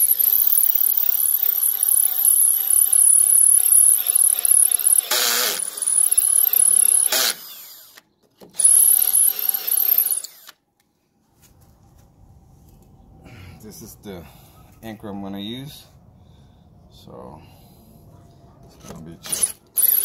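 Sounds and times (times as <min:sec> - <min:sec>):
drill boring into brick: 0:00.0 - 0:10.6, 0:19.2 - 0:20.0.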